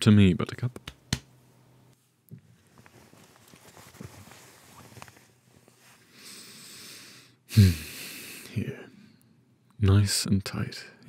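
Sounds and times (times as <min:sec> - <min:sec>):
fabric rustling: 0:02.0 - 0:06.0.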